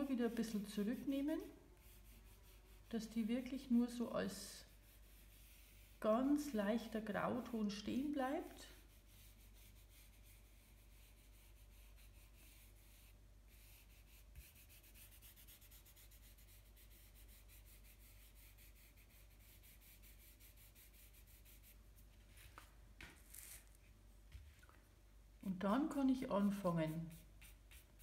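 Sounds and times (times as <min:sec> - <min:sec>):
fingers rubbing drawing paper: 0:00.3 - 0:03.2, 0:04.6 - 0:06.0, 0:08.7 - 0:23.8, 0:26.5 - 0:28.0.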